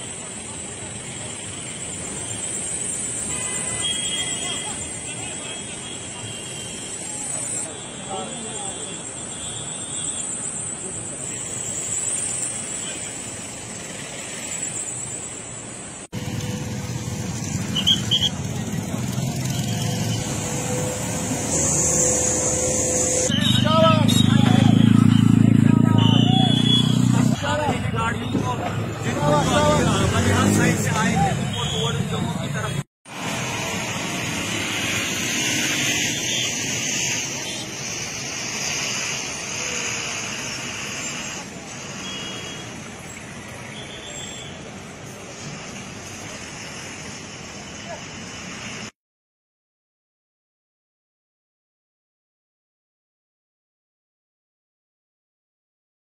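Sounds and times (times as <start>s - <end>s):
queued vehicle engines: 0.0s - 48.9s
road traffic hiss and rumble: 0.0s - 49.0s
motorcycle engines riding past: 16.2s - 31.6s.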